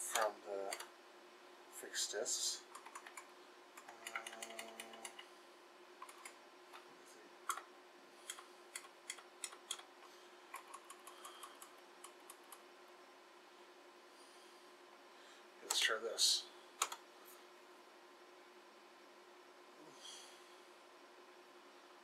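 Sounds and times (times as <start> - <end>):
faint steady hum: 0.0 - 22.0
keyboard key clicks: 16.8 - 17.0.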